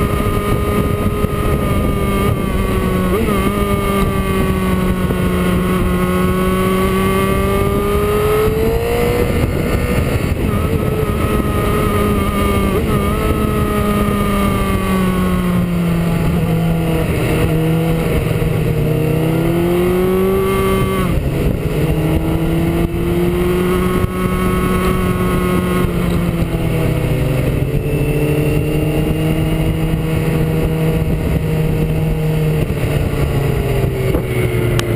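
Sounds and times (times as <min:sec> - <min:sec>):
motorcycle engine running: 0:00.0 - 0:34.9
wind and road noise: 0:00.0 - 0:34.9.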